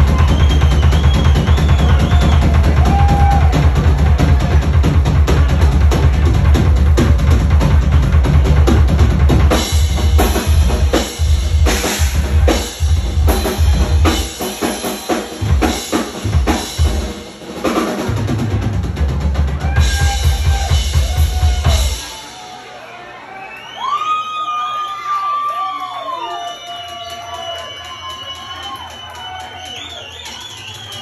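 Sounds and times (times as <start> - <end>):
snare and tom fills: 0.0 - 22.2.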